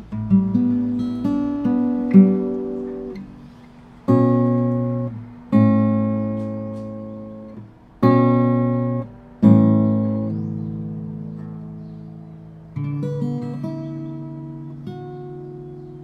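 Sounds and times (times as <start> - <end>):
acoustic guitar strummed chords: 0.0 - 16.0.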